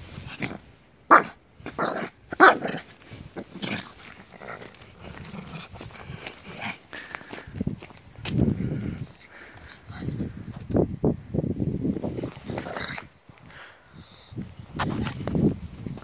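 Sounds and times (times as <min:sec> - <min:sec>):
small dog barking and growling: 0:00.3 - 0:06.8.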